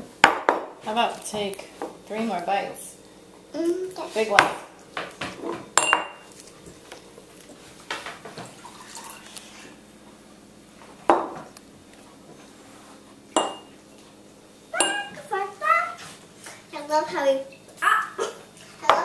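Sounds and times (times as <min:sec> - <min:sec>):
glass jars clinking: 0:05.8 - 0:06.2, 0:13.4 - 0:13.7, 0:14.8 - 0:15.2.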